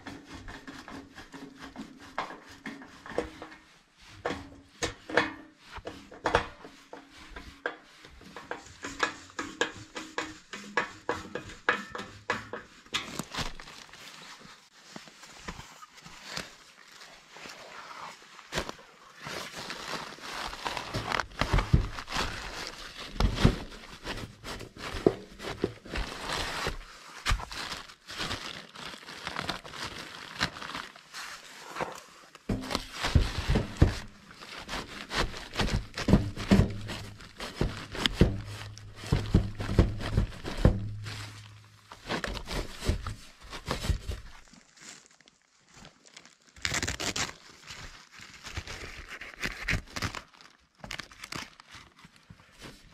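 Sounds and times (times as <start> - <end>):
rustling and crinkling: 0.0 - 52.9
sharp knocks and thuds: 21.0 - 27.8, 32.5 - 44.3.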